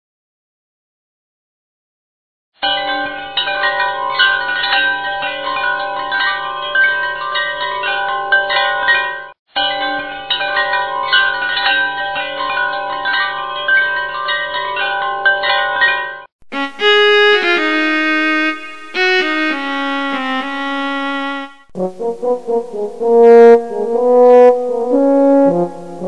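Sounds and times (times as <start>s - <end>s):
chiming bell-like music: 2.6s - 17.6s.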